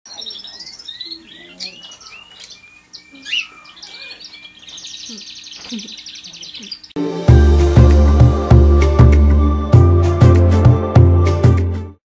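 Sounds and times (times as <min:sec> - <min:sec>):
caged birds chirping and trilling: 0:00.1 - 0:07.0.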